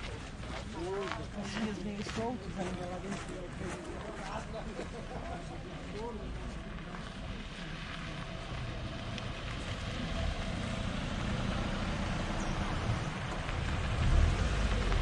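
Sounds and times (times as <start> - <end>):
tyres on dirt road: 0.0 - 15.0
car engine passing: 7.2 - 15.0.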